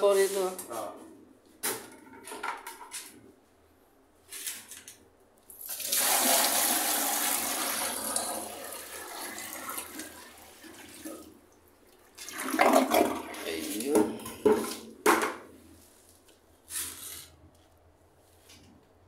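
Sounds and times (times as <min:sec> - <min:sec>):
water rushing into toilet bowl: 0:05.6 - 0:13.8.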